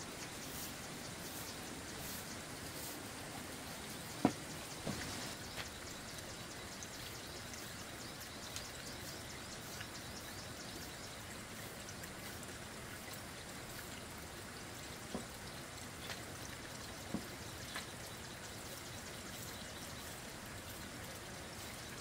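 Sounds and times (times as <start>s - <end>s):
sharp knocks: 4.2s - 5.2s.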